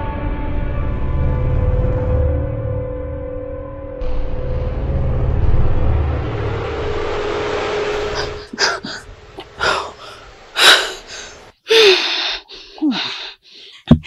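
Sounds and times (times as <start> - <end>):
woman moaning: 8.1 - 13.4
woman gasping: 8.2 - 14.0.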